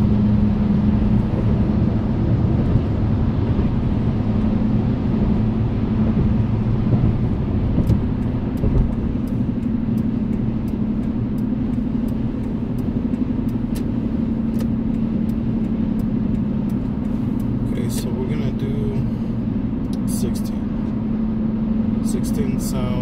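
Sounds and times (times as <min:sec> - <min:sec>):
engine and tyre rumble: 0:00.0 - 0:23.0
steady drone: 0:00.0 - 0:23.0
faint light ticks: 0:07.8 - 0:18.4.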